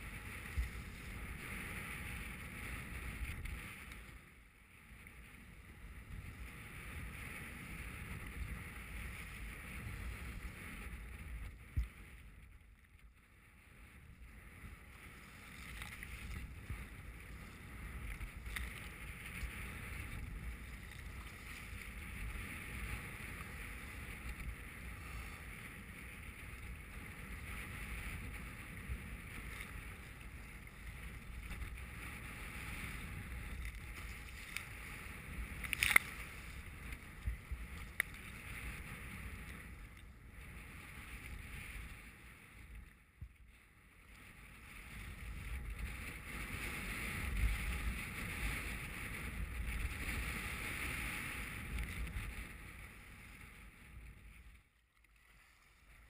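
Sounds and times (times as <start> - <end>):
wind and choppy water rushing: 6.1 - 56.0.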